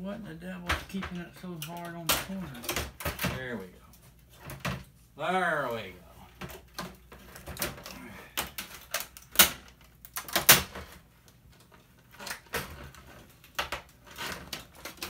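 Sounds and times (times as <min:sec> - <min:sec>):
plastic panel cracking and snapping: 0:06.4 - 0:15.0.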